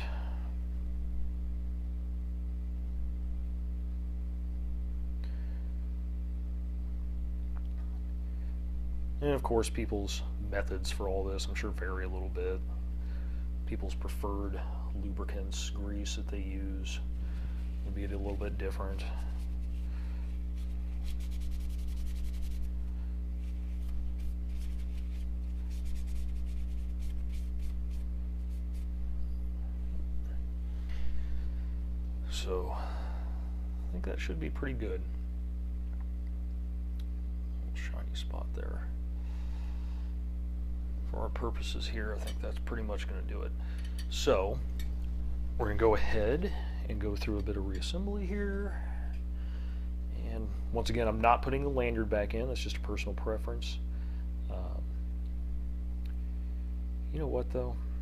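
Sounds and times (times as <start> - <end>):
low electrical hum: 0.0 - 58.0
scratchy rubbing strokes: 17.4 - 29.1.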